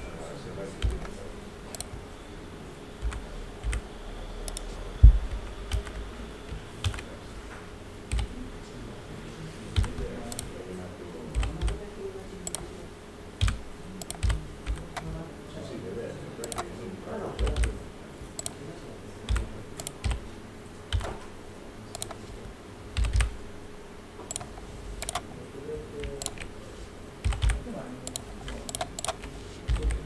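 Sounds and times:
faint steady hum: 0.0 - 30.0
keyboard and mouse clicks: 0.8 - 2.0, 3.0 - 3.8, 4.5 - 4.7, 5.7 - 7.1, 8.1 - 8.3, 9.8 - 10.5, 11.4 - 11.8, 12.4 - 12.7, 13.4 - 15.1, 16.4 - 16.7, 17.4 - 17.8, 18.4 - 18.6, 19.3 - 20.2, 20.9 - 21.2, 21.9 - 22.2, 23.0 - 23.4, 24.2 - 25.2, 26.0 - 26.5, 27.2 - 30.0.

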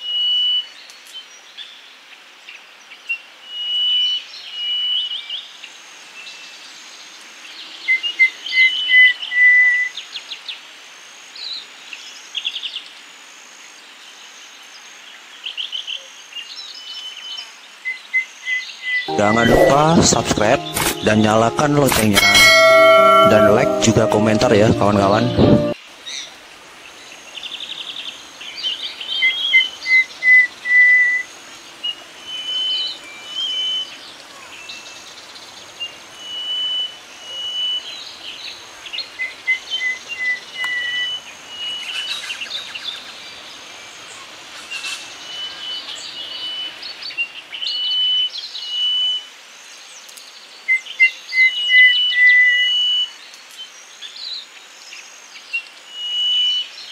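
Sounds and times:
bird whistled song: 32.3 - 34.0, 36.2 - 38.1, 39.2 - 42.9, 44.8 - 46.8, 50.7 - 53.2, 55.9 - 56.7.

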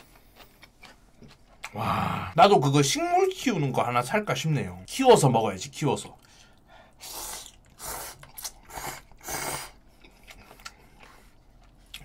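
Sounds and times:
quiet chewing: 0.0 - 1.8, 6.2 - 12.0.

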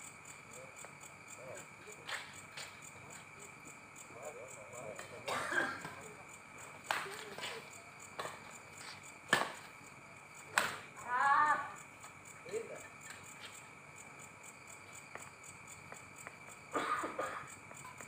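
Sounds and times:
racket hitting shuttlecock: 9.3 - 9.7, 10.5 - 10.8.

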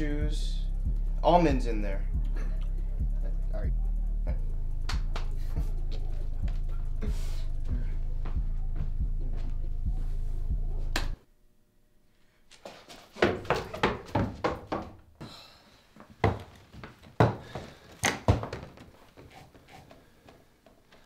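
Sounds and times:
bass-heavy music with steady beat: 0.0 - 11.2
irregular thuds and knocks: 13.2 - 15.0, 16.2 - 20.3.

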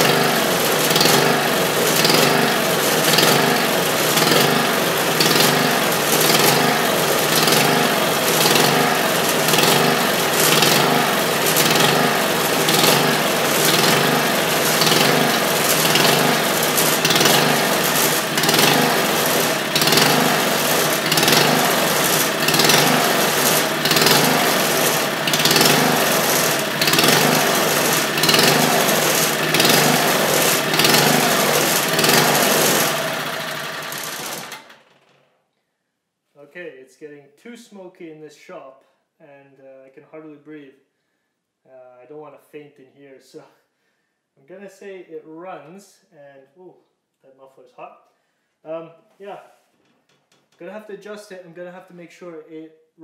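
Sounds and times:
small engine running unevenly: 0.0 - 35.0.

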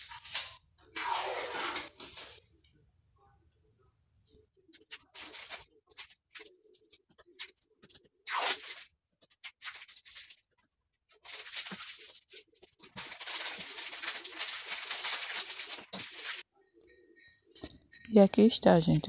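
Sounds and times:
scratchy rubbing: 0.0 - 2.4.

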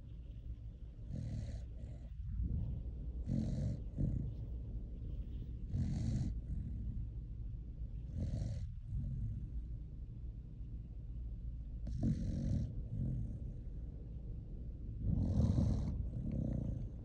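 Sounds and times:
dog snoring: 1.0 - 4.6, 5.6 - 7.1, 7.9 - 9.7, 11.8 - 13.7, 15.0 - 17.0.

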